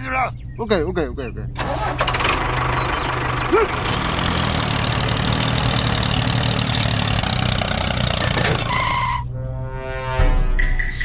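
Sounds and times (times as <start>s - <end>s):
tractor engine running: 1.6s - 9.0s.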